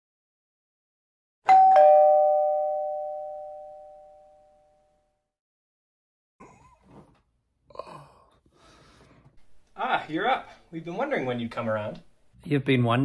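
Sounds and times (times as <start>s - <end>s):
two-tone ding-dong chime: 1.5s - 4.7s.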